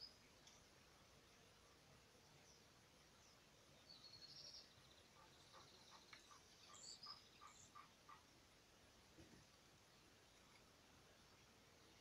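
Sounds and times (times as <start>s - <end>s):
bird singing lower notes: 2.4s - 7.9s.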